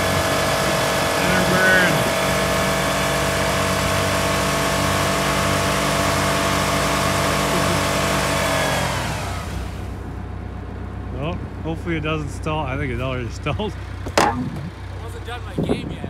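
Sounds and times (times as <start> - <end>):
car engine revving high: 0.0 - 10.0
wheels spinning in snow: 0.0 - 10.0.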